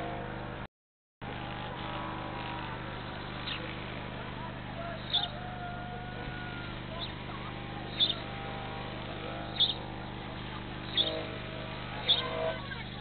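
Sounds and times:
steady low hum: 0.0 - 13.0
faint background bird calls: 4.8 - 7.2, 7.8 - 8.3, 9.3 - 11.4, 12.0 - 12.9
small bird calling: 5.0 - 5.4, 7.9 - 8.3, 9.5 - 9.9, 10.8 - 11.3, 12.0 - 12.9.

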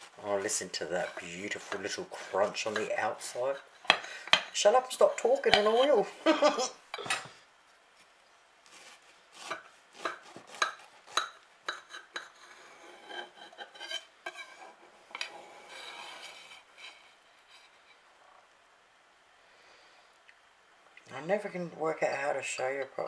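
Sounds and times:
knife scraping on plate: 9.4 - 18.0.

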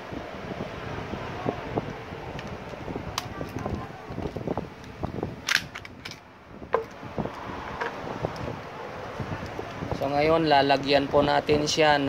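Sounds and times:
plastic holster clicks and knocks: 6.8 - 7.0.

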